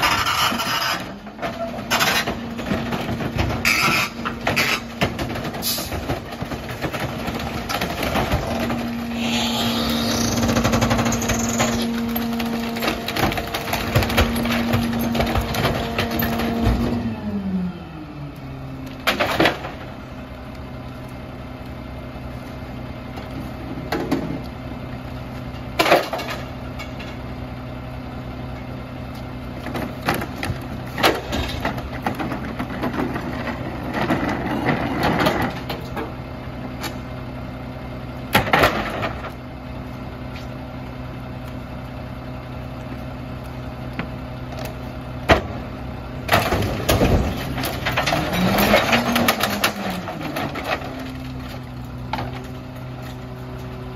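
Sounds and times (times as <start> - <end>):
junk clanking and thudding: 0.0 - 9.0, 10.4 - 17.2, 19.0 - 20.3, 25.5 - 27.4, 29.5 - 37.2, 38.3 - 39.5, 43.7 - 53.9
garbage truck idling: 0.0 - 53.9.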